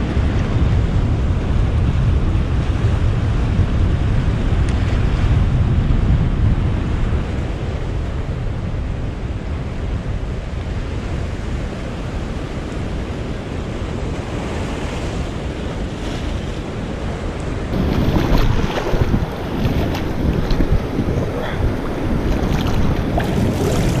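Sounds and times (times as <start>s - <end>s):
ocean surf on rocks: 0.0s - 24.0s
wind rumbling on microphone: 0.0s - 24.0s
water sloshing and splashing: 17.7s - 24.0s.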